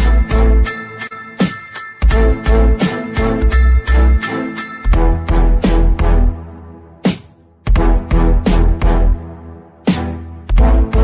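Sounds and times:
upbeat music with deep bass: 0.0s - 11.0s.

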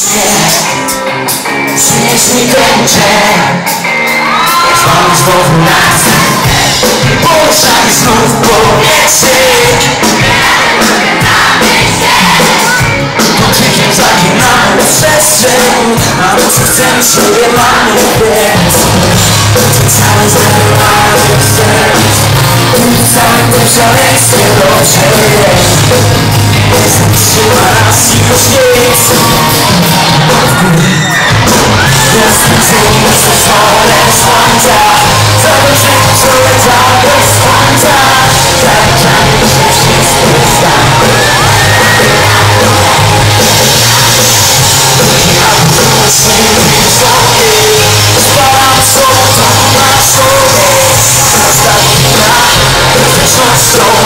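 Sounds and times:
crowd shouting and cheering: 0.0s - 54.0s
live rock band playing: 0.0s - 54.0s
person singing: 0.0s - 54.0s
heavy low bass: 17.6s - 54.0s.

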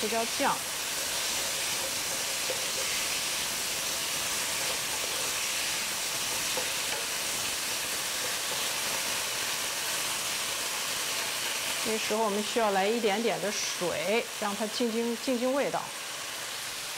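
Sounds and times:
chicken wings sizzling in pan: 0.0s - 16.9s
spatula scraping and tapping pan: 0.9s - 9.8s.

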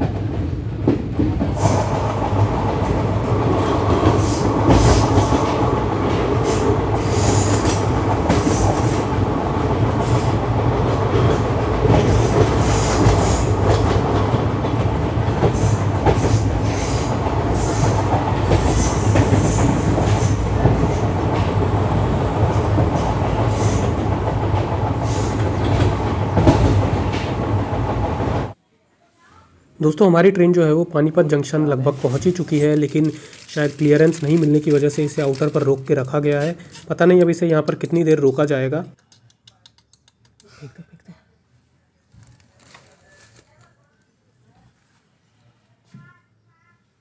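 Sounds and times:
train wheels rumbling on rail: 0.0s - 28.6s.

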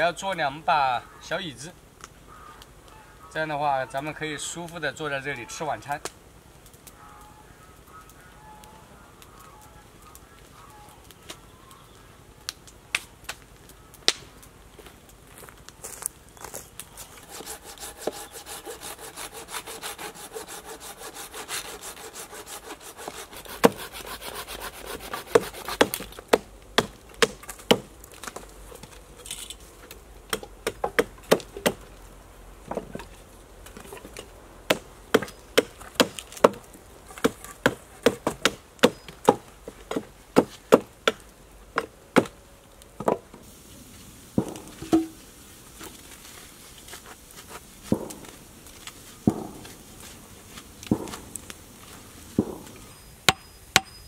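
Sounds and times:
saw cutting wood: 17.2s - 26.0s
hatchet chopping wood: 17.3s - 28.4s, 30.3s - 31.8s, 34.7s - 36.6s, 37.2s - 41.2s, 41.8s - 42.3s, 50.9s - 51.3s, 52.4s - 54.0s.

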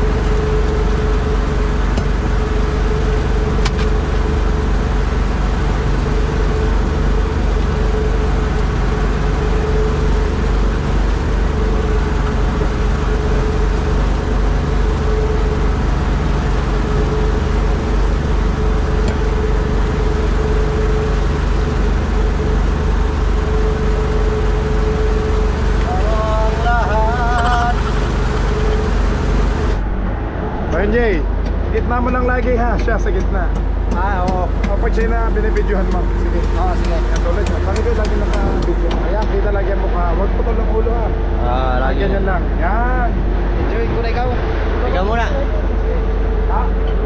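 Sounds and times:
boat engine droning: 0.0s - 47.0s.

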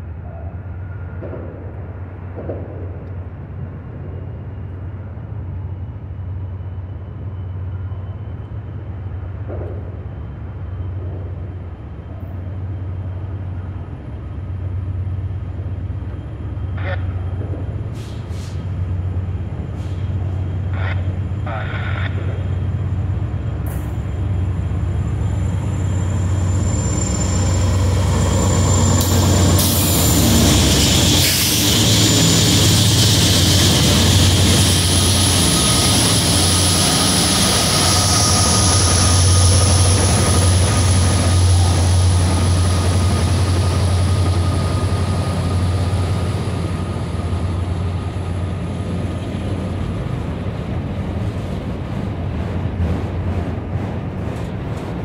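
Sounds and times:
diesel locomotive engine rumble: 0.0s - 55.0s
freight cars rolling past: 17.2s - 55.0s
high whine: 23.9s - 48.6s.

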